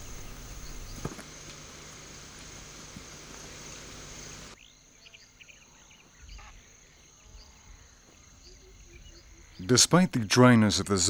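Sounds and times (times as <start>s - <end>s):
faint bird chirps: 0.0s - 1.1s, 4.6s - 9.8s
high insect trill: 0.0s - 11.0s.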